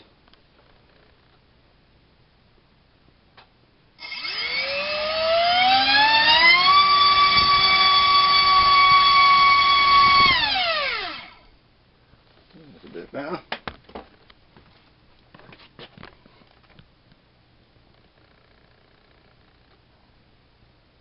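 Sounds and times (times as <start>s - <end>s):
electric motor whining: 4.0s - 11.5s.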